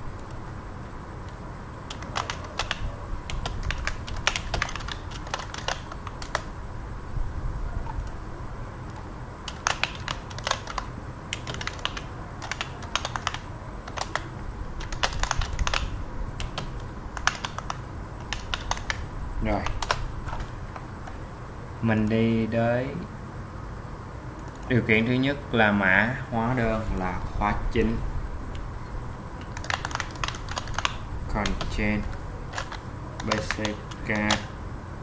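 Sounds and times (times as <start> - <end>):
steady low hum: 0.0 - 35.0
typing on computer keyboard: 1.9 - 6.5, 8.9 - 21.2, 29.4 - 34.5.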